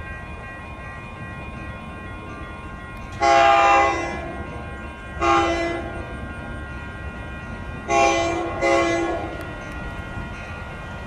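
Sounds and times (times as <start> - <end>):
train air horn blasts: 3.2 - 4.3, 5.2 - 6.0, 7.9 - 9.4.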